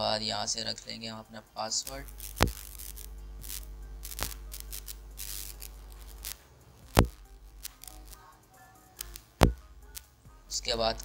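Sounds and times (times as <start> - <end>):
low hum: 0.0 - 8.2
faint background music: 0.0 - 11.0
sharp clicks: 1.9 - 8.2, 9.0 - 10.1.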